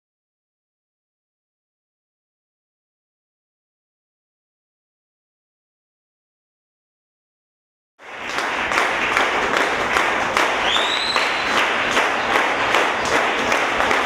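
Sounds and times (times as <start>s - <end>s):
audience applauding: 8.0s - 14.0s
short rising whistle: 10.6s - 11.5s.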